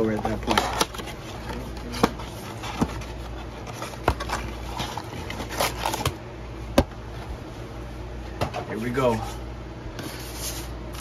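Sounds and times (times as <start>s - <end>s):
foil packs crinkling: 0.0s - 6.2s
low steady hum: 0.0s - 11.0s.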